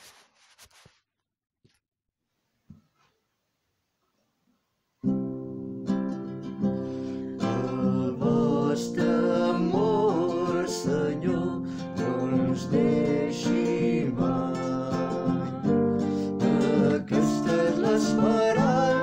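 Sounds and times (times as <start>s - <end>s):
acoustic guitar strumming: 5.0s - 19.0s
person singing a psalm: 7.4s - 19.0s.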